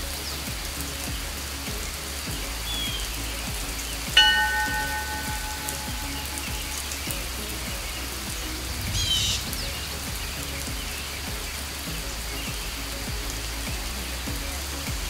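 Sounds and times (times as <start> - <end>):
steady rain falling: 0.0 - 15.0
bell ringing: 4.2 - 6.9.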